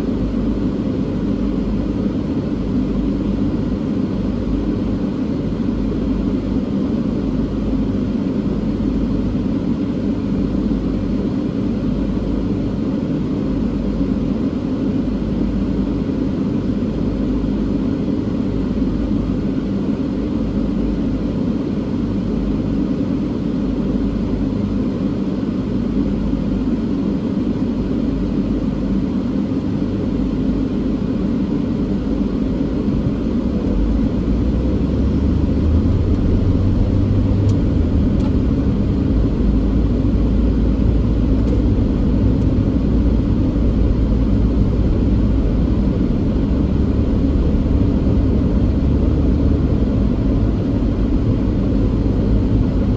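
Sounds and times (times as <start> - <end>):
car engine rumble: 30.2 - 52.9
road noise: 33.0 - 52.9.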